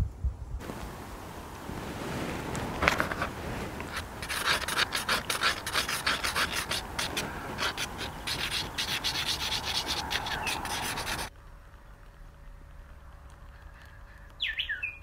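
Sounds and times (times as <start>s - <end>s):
charcoal scratching on paper: 3.9s - 11.3s.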